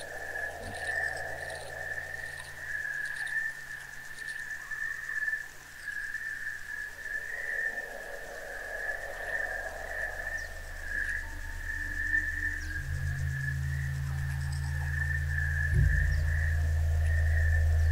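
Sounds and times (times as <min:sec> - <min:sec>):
soft low tone: 0:09.2 - 0:17.9
high-pitched drone: 0:10.0 - 0:17.9.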